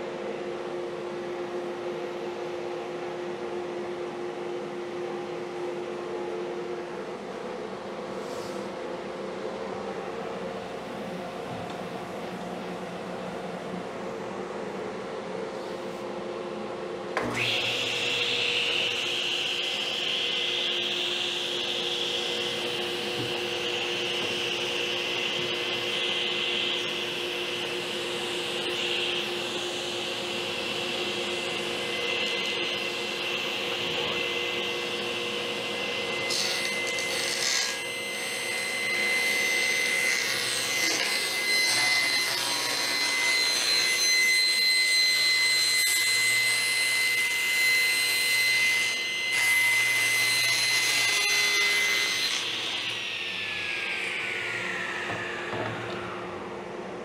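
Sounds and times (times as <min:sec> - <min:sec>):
table saw running: 0:17.1 - 0:57.0
saw blade high whine: 0:17.2 - 0:57.0.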